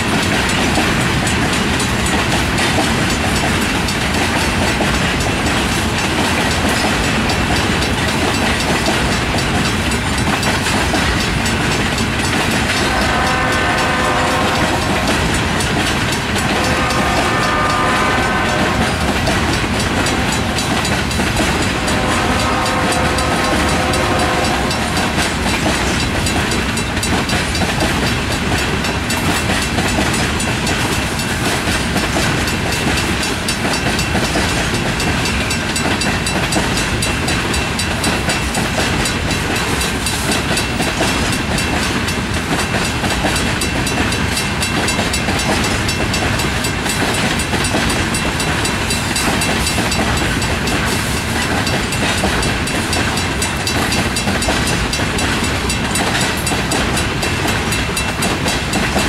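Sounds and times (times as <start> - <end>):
train wheels clacking on rails: 0.0 - 59.0
locomotive horn blasts: 12.7 - 25.6.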